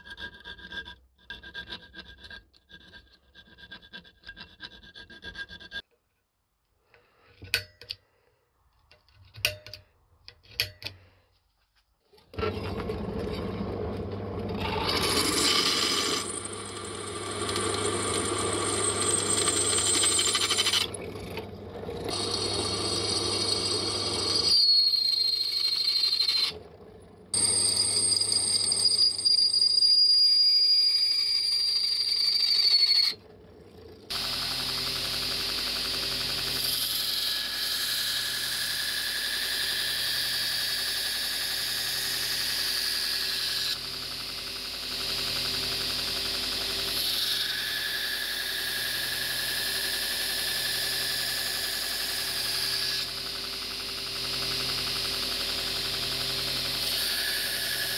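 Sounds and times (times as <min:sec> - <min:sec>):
drill press motor humming: 0:12.3 - 0:29.3, 0:31.9 - 0:37.5, 0:38.1 - 0:57.9
drill bit whining through steel: 0:12.3 - 0:33.2, 0:34.1 - 0:57.9.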